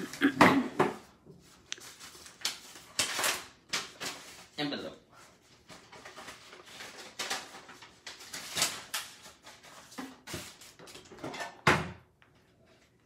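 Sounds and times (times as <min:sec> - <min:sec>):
paper rustling: 0:01.4 - 0:04.6, 0:05.3 - 0:11.2.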